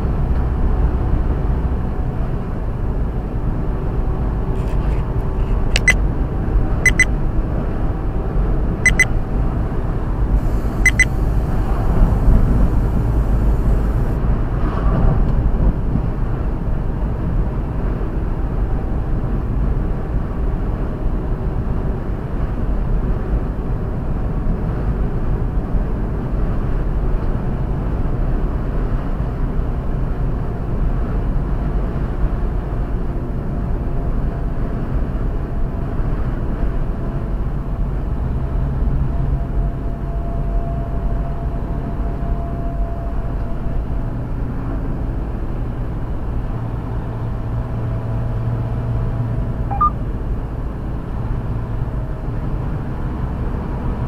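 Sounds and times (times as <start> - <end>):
truck engine and road drone: 0.0 - 54.0
short sharp pips: 4.6 - 6.0.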